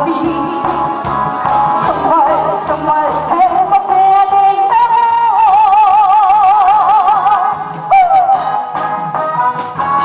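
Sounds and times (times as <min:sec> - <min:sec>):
woman singing: 0:00.0 - 0:00.9, 0:01.8 - 0:08.5
backing music with beat: 0:00.0 - 0:10.0.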